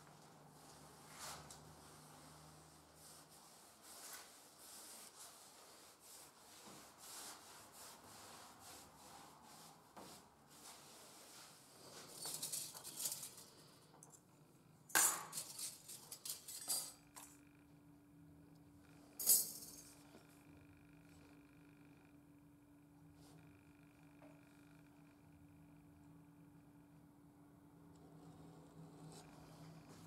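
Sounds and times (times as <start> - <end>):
cloth and brush rubbing wood: 0.5 - 12.2
metal combs clinking: 15.0 - 17.0.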